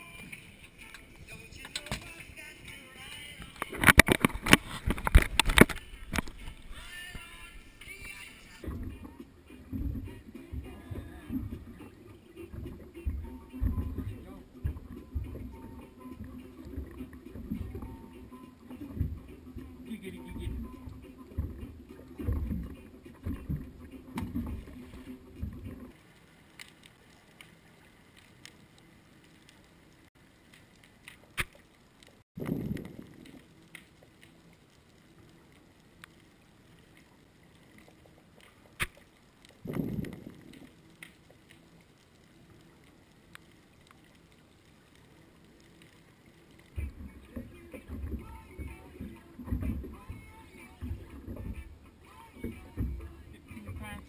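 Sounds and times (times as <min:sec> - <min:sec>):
muffled underwater hiss: 0:00.0 - 0:54.0
boat deck rumbling: 0:08.2 - 0:26.0, 0:46.7 - 0:54.0.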